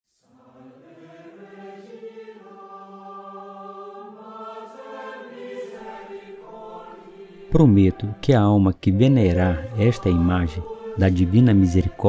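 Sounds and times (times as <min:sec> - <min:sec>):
choir chanting long notes: 0:00.1 - 0:12.0.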